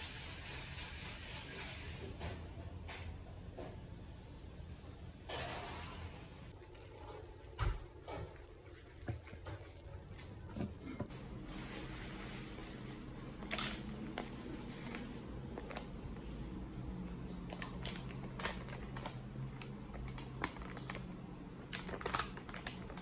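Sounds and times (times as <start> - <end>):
plastic bag rustling: 7.7 - 23.0
paper wrapping crinkling: 11.1 - 16.5, 17.2 - 23.0.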